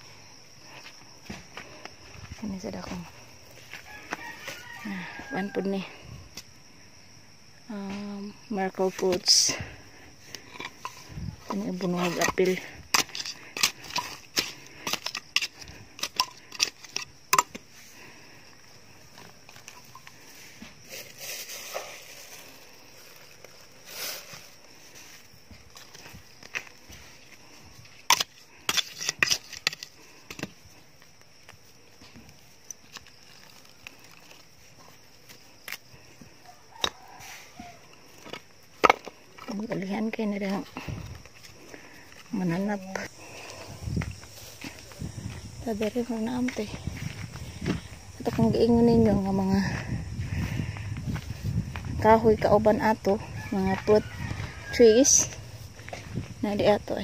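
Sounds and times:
metal tool scraping soil and stones: 10.2s - 18.0s, 19.0s - 35.9s.

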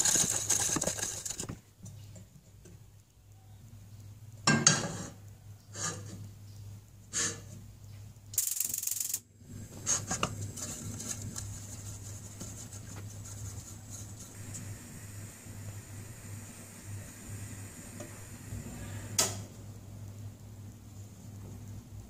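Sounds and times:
wooden spoon stirring water: 0.0s - 2.8s, 9.6s - 14.6s
faint hiss and low hum: 0.0s - 22.0s
spoon scraping pot: 9.7s - 14.5s.

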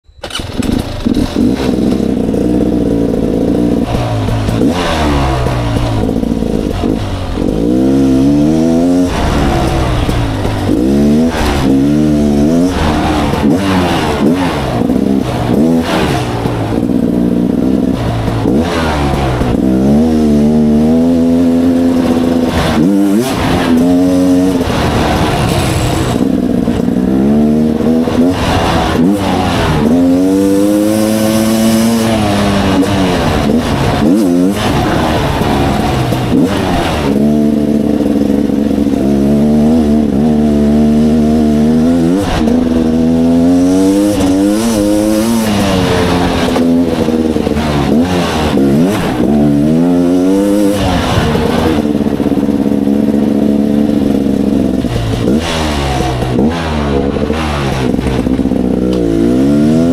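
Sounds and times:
motorcycle engine revving: 0.1s - 59.9s.

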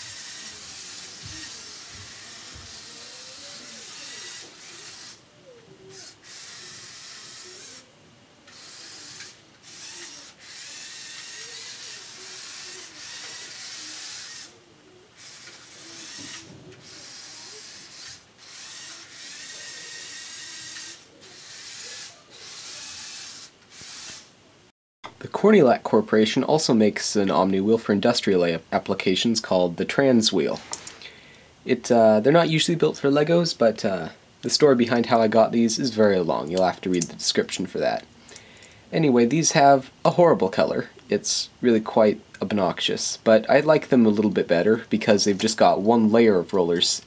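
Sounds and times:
robot motors and gears whirring: 0.0s - 5.2s, 5.9s - 7.8s, 8.5s - 14.5s, 15.2s - 24.3s.

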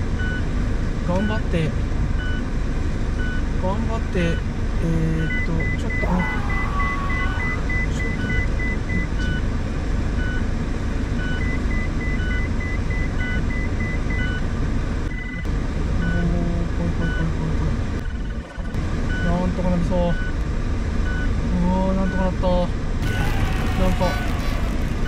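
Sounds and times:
car engine and road noise: 0.0s - 25.0s
slow electronic beeps: 5.2s - 9.4s, 11.2s - 14.4s, 18.0s - 19.4s.

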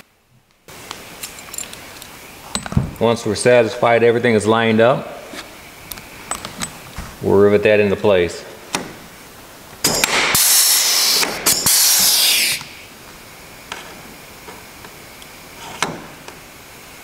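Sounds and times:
rivet gun air hissing: 10.0s - 12.9s.

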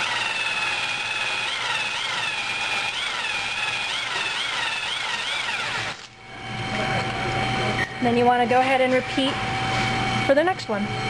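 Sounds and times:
electric drill whining: 0.0s - 7.2s.

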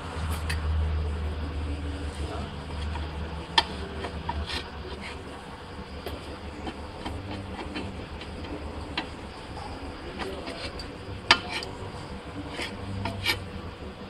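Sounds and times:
low steady hum: 0.0s - 14.0s
glove scraping on metal: 1.9s - 13.8s.

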